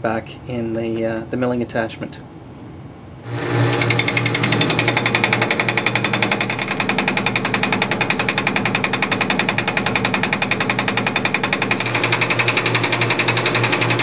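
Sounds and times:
steady low hum: 0:00.0 - 0:14.0
lathe cutter rattling on metal: 0:03.2 - 0:14.0.

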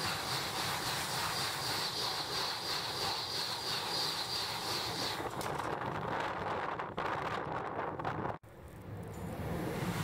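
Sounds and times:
high-speed train passing: 0:00.0 - 0:10.0.

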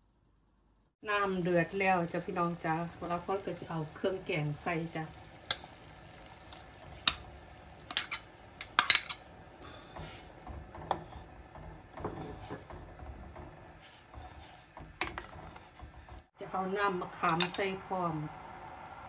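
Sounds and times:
boiling water bubbling: 0:01.2 - 0:16.4
spoon stirring pot: 0:06.4 - 0:16.3.

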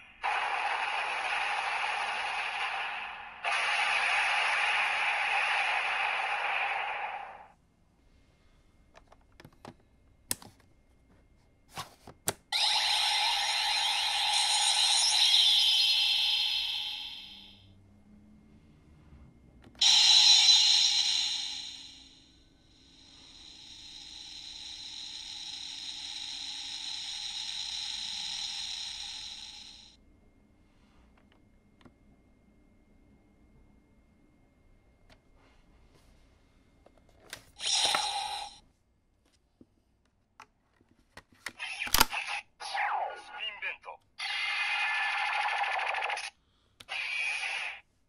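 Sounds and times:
toy belt electronic sound effect: 0:00.0 - 0:07.5, 0:12.5 - 0:17.6, 0:19.8 - 0:30.0, 0:37.6 - 0:38.6, 0:41.6 - 0:47.8.

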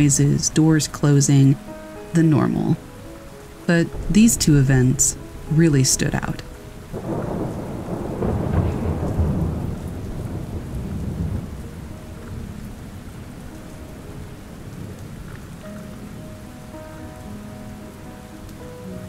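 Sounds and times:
steady rainfall: 0:00.0 - 0:19.0
thunder rumbling: 0:03.7 - 0:17.1.

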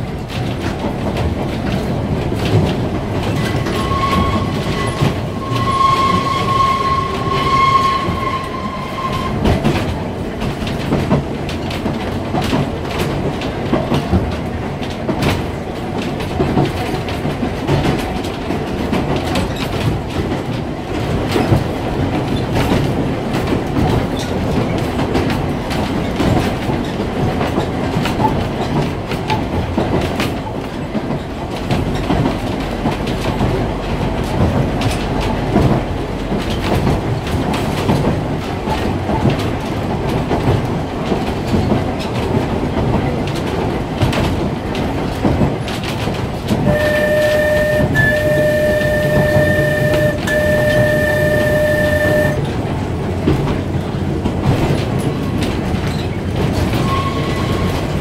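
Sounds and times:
tram rumbling: 0:00.0 - 0:58.0
wheels clicking over rail joints: 0:00.0 - 0:58.0
high wheel squeal: 0:03.6 - 0:09.5, 0:46.7 - 0:52.4, 0:56.8 - 0:57.7.

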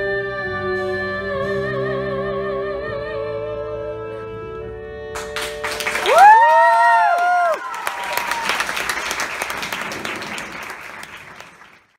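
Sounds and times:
audience applause: 0:05.2 - 0:11.9
whooping cheers: 0:05.9 - 0:09.4.

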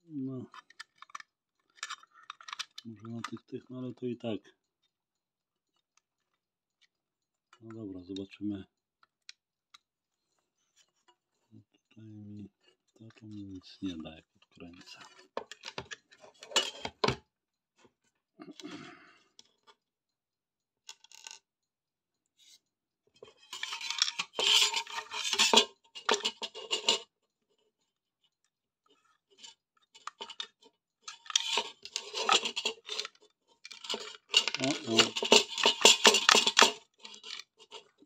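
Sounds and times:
metal clinking and scraping: 0:00.4 - 0:03.4, 0:13.8 - 0:17.2, 0:20.9 - 0:21.4, 0:23.2 - 0:27.1, 0:28.9 - 0:38.0.

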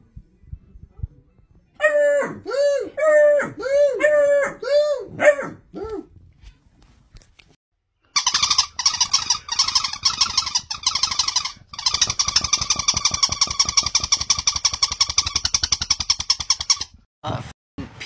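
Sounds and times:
toy ball pulsing squeak: 0:08.2 - 0:17.0.

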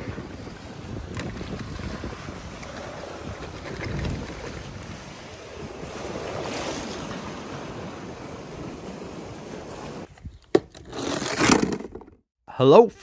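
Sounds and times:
sea surf washing over rocks: 0:00.0 - 0:10.1
wind on microphone: 0:00.0 - 0:10.4.

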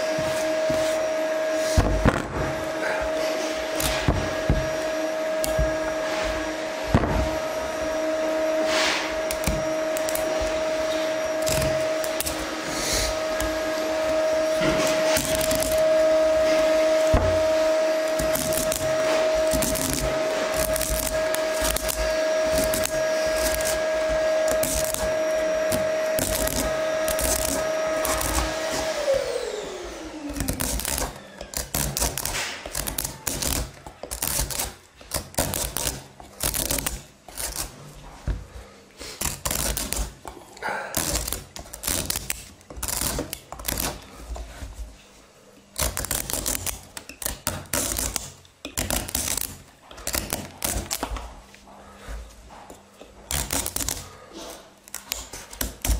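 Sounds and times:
knife scraping squash skin: 0:18.1 - 0:28.5, 0:30.4 - 0:38.2, 0:39.0 - 0:44.7.

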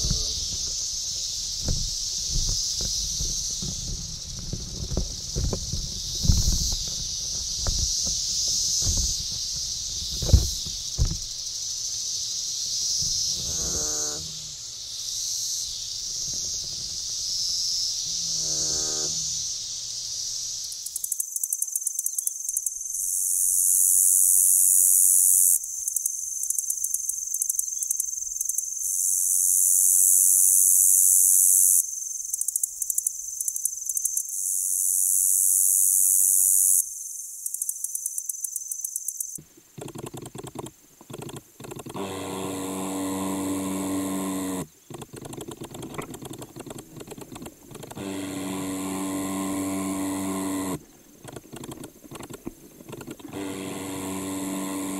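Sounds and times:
katydid buzzing and ticking: 0:00.0 - 0:19.7, 0:37.4 - 0:54.9
low katydid vibration song: 0:00.0 - 0:20.9, 0:39.7 - 0:54.9.

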